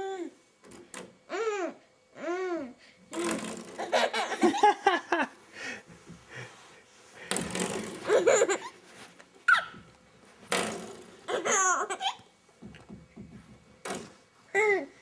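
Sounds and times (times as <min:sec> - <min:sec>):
baby laughing and babbling: 0:01.3 - 0:04.5, 0:08.0 - 0:08.8, 0:11.3 - 0:12.3, 0:14.5 - 0:15.0.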